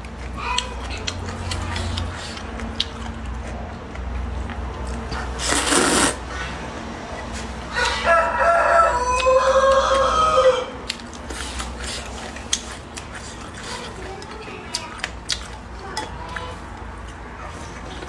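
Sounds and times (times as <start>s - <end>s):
noodle slurp: 5.1s - 6.6s
rooster crowing: 7.7s - 10.8s.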